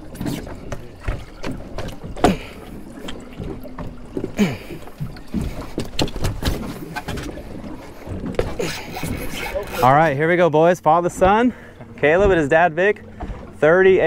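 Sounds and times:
knocks and thumps on boat deck: 0:00.0 - 0:14.0
brief creaks: 0:08.3 - 0:10.2.

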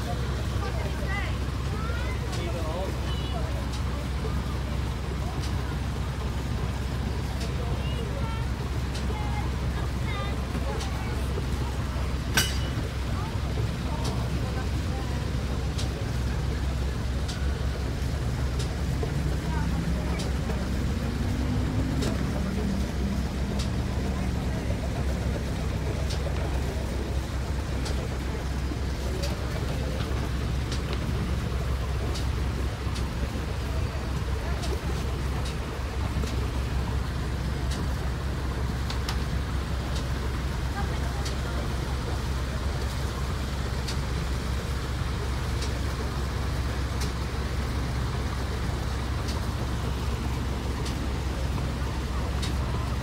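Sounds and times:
motorboat engine idling: 0:00.0 - 0:53.0.

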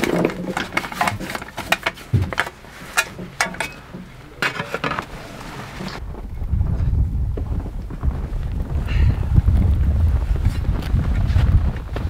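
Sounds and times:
snow shovel metal rattling: 0:00.0 - 0:06.0.

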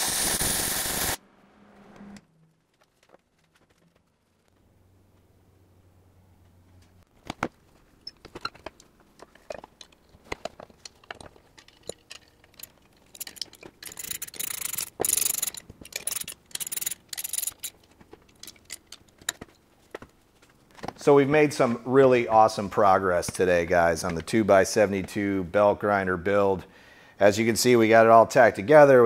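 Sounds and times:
metal hardware clicking: 0:08.0 - 0:19.6
ratchet wrench clicking: 0:11.8 - 0:19.0.

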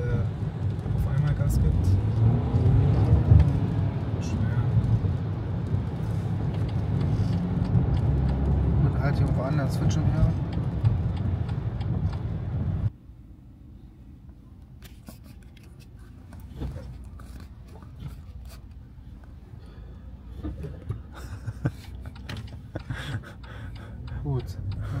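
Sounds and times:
scattered clicks: 0:06.4 - 0:08.6, 0:09.2 - 0:12.3, 0:21.7 - 0:25.0
low rumble: 0:10.3 - 0:14.1
car cabin noise: 0:14.2 - 0:19.5, 0:20.1 - 0:25.0
soft rustling: 0:14.8 - 0:19.4.

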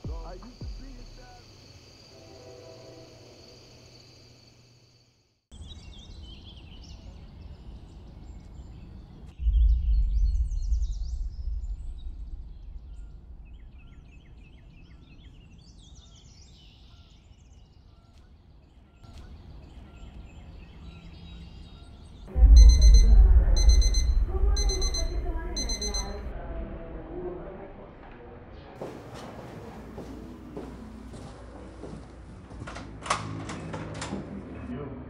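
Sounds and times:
birds chirping: 0:05.5 - 0:26.3
deep low rumble: 0:09.4 - 0:15.4, 0:22.3 - 0:28.5.

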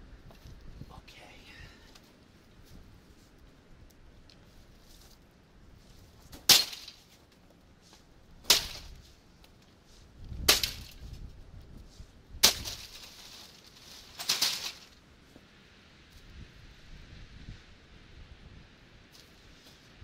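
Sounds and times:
axe striking plastic: 0:06.3 - 0:07.0, 0:08.5 - 0:08.9, 0:10.5 - 0:10.9, 0:12.4 - 0:13.0
plastic breaking: 0:12.4 - 0:15.0.

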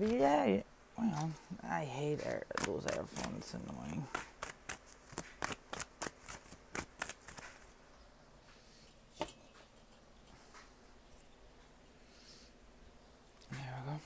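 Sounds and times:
cards being shuffled: 0:02.1 - 0:07.8.

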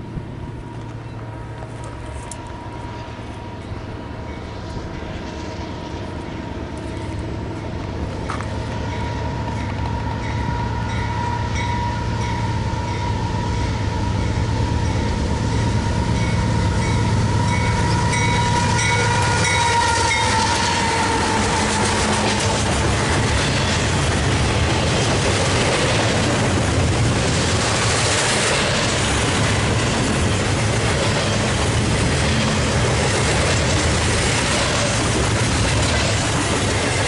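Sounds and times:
freight train rumbling: 0:00.0 - 0:37.0
locomotive bell ringing: 0:06.4 - 0:23.9.

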